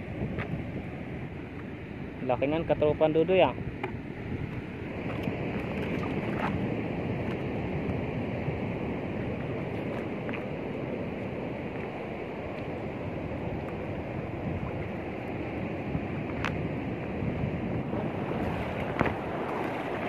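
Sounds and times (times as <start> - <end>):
waves crashing on rocks: 4.7 - 20.0.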